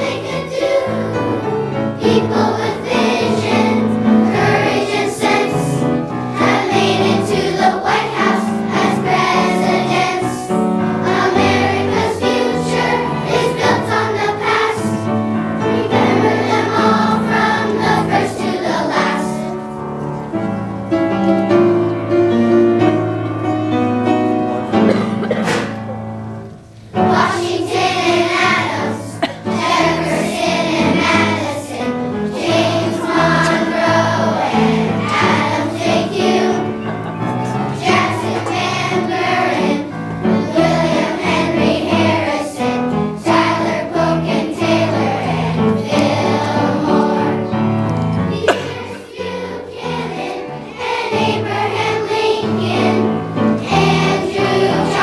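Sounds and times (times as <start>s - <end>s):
children's choir singing: 0.0s - 55.0s
musical accompaniment: 0.0s - 55.0s.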